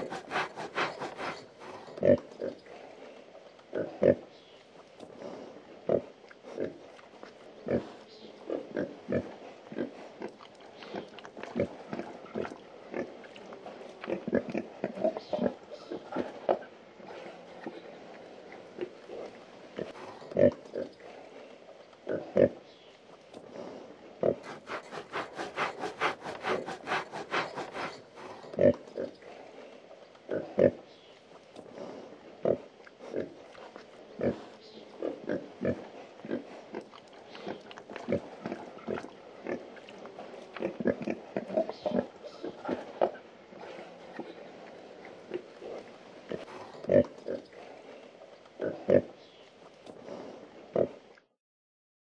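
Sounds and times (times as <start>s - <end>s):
pigs grunting: 0.0s - 2.8s, 23.6s - 29.4s.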